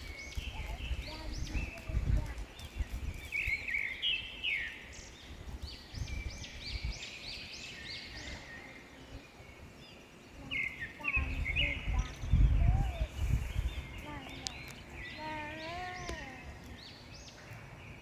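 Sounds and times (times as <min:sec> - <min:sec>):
mockingbird singing: 0:00.0 - 0:18.0
low rumble on microphone: 0:10.5 - 0:16.8.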